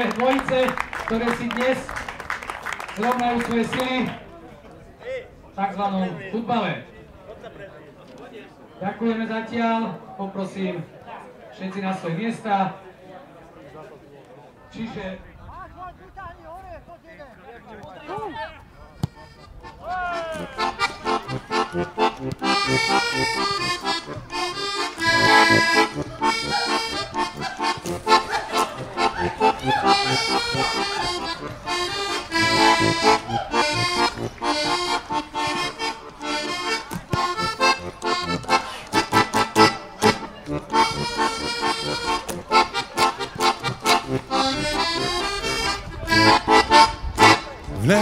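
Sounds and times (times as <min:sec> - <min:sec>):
accordion music with steady beat: 0:18.7 - 0:48.0.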